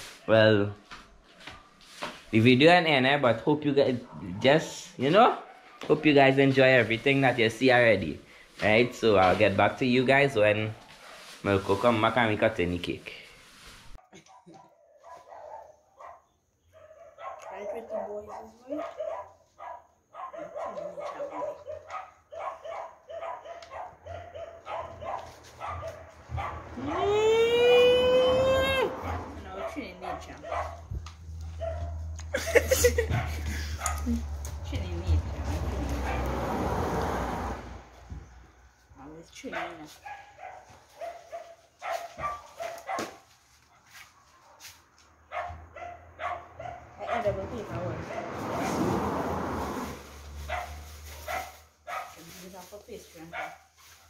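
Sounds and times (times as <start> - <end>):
dogs yapping: 14.0 - 34.4, 35.8 - 36.4, 39.5 - 47.4, 50.4 - 52.2.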